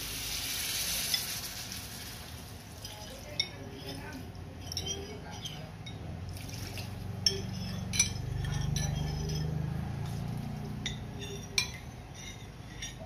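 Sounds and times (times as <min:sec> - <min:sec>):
liquid pouring into a wok: 0:00.0 - 0:03.2, 0:06.3 - 0:07.1
ceramic clinking on metal: 0:02.8 - 0:06.1, 0:07.2 - 0:13.0.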